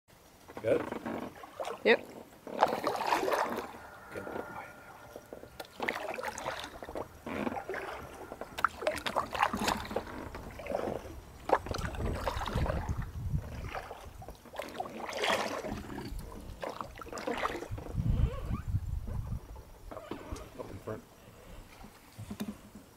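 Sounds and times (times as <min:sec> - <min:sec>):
paddle splashing water: 0:00.2 - 0:22.9
low rumble on microphone: 0:02.4 - 0:14.4, 0:17.6 - 0:21.0.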